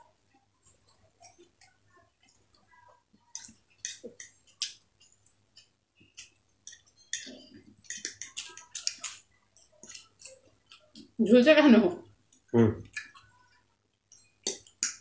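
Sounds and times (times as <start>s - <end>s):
eating noises: 0.3s - 11.2s, 12.0s - 15.0s
forks scraping on plates: 6.6s - 9.2s.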